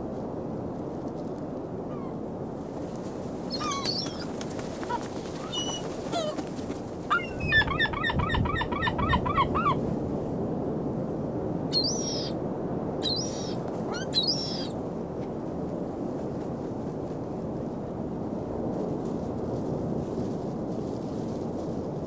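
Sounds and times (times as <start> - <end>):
gulls calling: 3.5 - 9.8, 11.7 - 12.4, 13.0 - 14.8.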